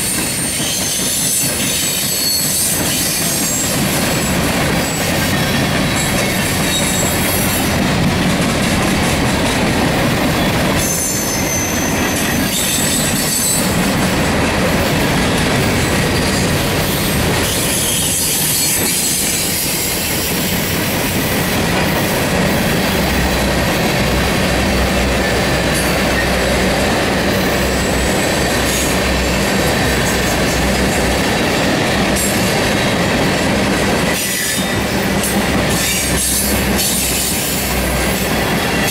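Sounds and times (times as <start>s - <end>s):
train wheels rumbling on rails: 0.0s - 38.9s
wheels clacking over rail joints: 0.0s - 38.9s
high-pitched wheel squeal: 0.1s - 3.7s, 10.8s - 13.8s, 16.1s - 20.0s.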